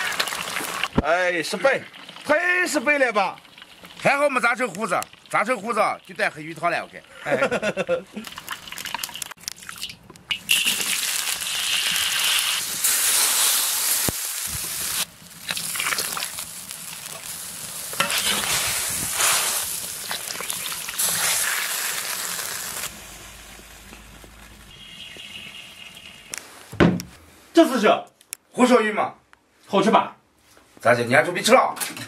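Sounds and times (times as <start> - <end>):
oil and sauce sizzling in wok: 0.0 - 7.1, 8.2 - 26.7.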